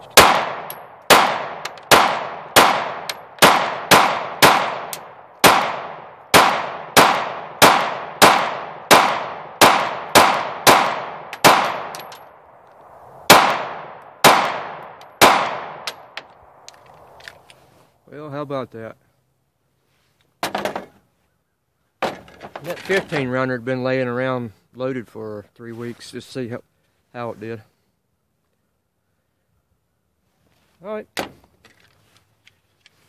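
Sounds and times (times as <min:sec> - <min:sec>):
pistol firing rapidly: 0:00.2 - 0:12.0, 0:13.3 - 0:15.8.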